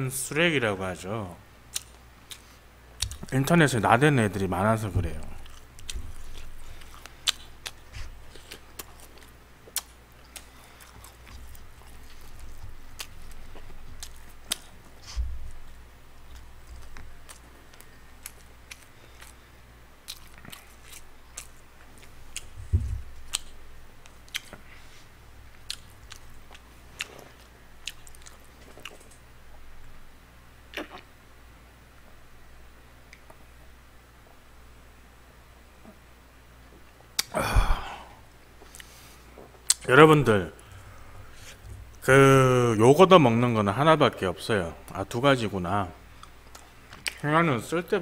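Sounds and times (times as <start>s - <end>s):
person chewing food: 1.7s - 3.3s, 5.2s - 29.2s, 38.6s - 39.8s, 46.2s - 47.2s.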